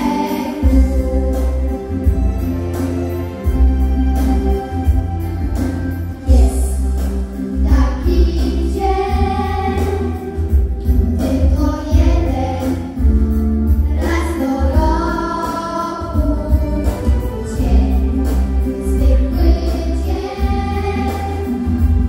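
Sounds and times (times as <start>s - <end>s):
children singing: 0.0s - 2.3s, 6.2s - 13.2s, 13.8s - 22.0s
backing music with pulsing bass: 0.0s - 22.0s.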